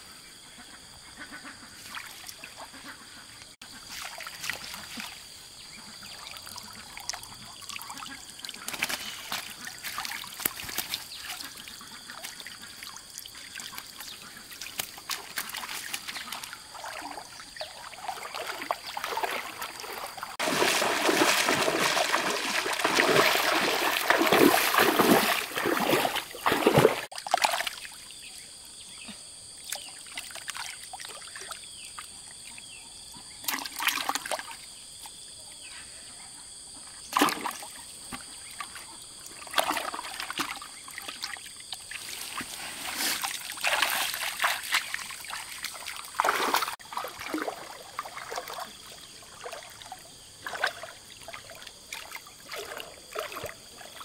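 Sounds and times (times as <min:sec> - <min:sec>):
water trickling: 0:06.0 - 0:27.6
water splashing: 0:06.2 - 0:27.9, 0:37.1 - 0:37.7, 0:38.4 - 0:54.0.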